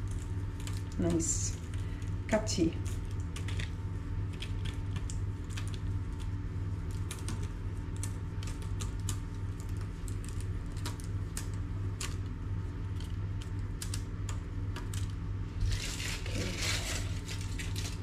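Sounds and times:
baking paper crinkling: 0:00.0 - 0:14.0, 0:14.8 - 0:18.0
steady low hum: 0:00.0 - 0:18.0
dough pieces ticking on tray: 0:02.9 - 0:15.2.

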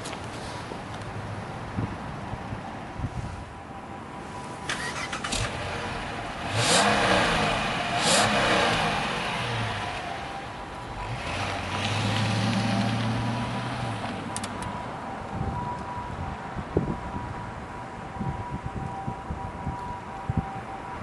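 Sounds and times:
car engine revving: 0:04.7 - 0:14.4
car pulling away: 0:04.7 - 0:14.8.

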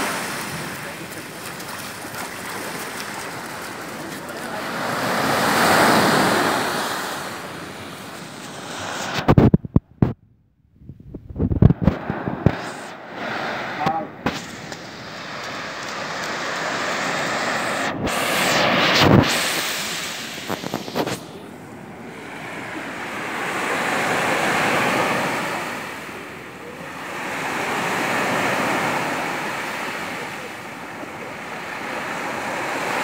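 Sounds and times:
waves breaking on beach: 0:00.0 - 0:09.5, 0:11.6 - 0:33.0
wind buffeting microphone: 0:05.6 - 0:22.0.

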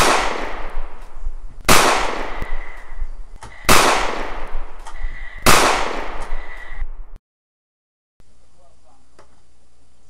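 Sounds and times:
gunshots: 0:00.0 - 0:01.0, 0:01.7 - 0:02.8, 0:03.6 - 0:04.8, 0:05.4 - 0:06.6.

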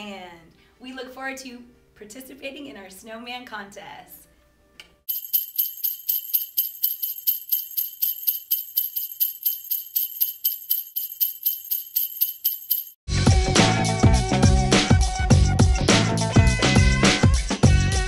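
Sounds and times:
sleigh bells shaken: 0:05.1 - 0:13.0.

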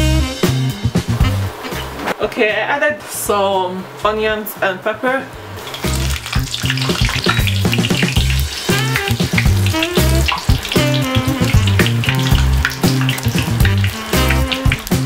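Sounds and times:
music with stepping bass line: 0:00.0 - 0:02.0, 0:05.8 - 0:15.0
food deep-frying in oil: 0:05.5 - 0:15.0.

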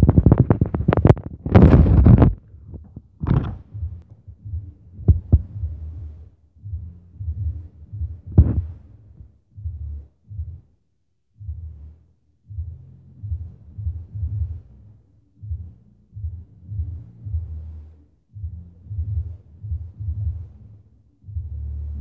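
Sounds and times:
sharp knocks: 0:00.0 - 0:04.0
muffled thumping through ceiling: 0:00.0 - 0:10.8, 0:11.4 - 0:22.0.

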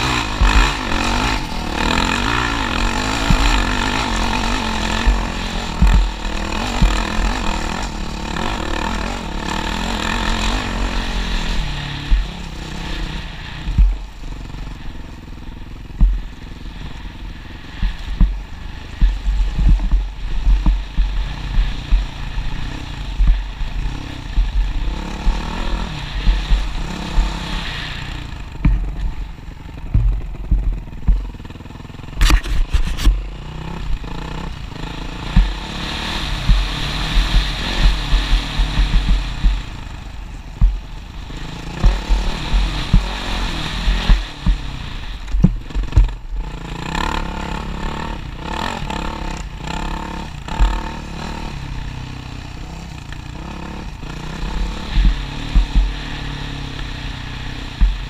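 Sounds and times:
short low thumps: 0:00.0 - 0:07.6, 0:11.6 - 0:12.4, 0:13.7 - 0:14.2, 0:15.9 - 0:16.4, 0:17.8 - 0:27.6, 0:28.4 - 0:34.1, 0:35.3 - 0:35.6, 0:36.4 - 0:41.2, 0:41.8 - 0:43.2, 0:43.8 - 0:46.4, 0:54.6 - 0:56.6, 0:57.7 - 0:58.0
motorcycle engine revving: 0:00.0 - 0:58.0.

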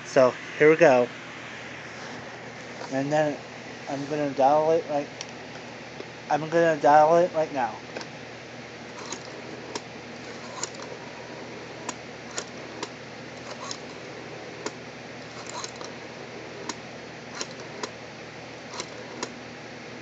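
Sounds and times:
rotary telephone dialing clicks: 0:08.9 - 0:11.2, 0:11.8 - 0:18.0, 0:18.7 - 0:19.4.

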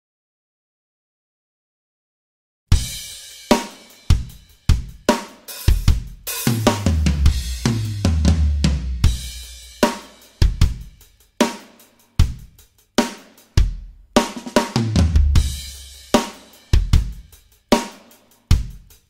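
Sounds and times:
kick and snare drum hits: 0:12.2 - 0:18.0.

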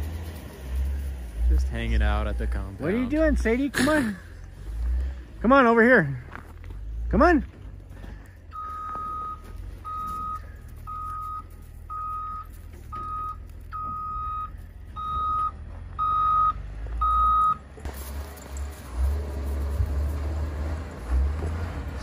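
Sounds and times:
reversing alarm beeping: 0:08.5 - 0:17.6.

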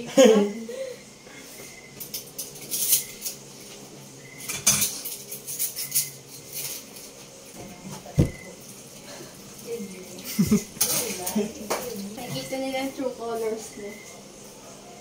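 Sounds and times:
dishes and cutlery clinking: 0:02.0 - 0:03.4, 0:04.4 - 0:07.3, 0:10.5 - 0:12.5.

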